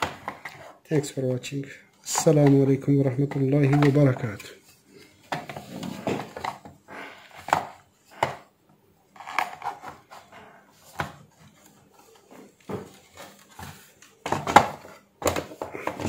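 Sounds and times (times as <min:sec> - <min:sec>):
plastic scrape: 0:05.2 - 0:08.5, 0:09.2 - 0:16.0.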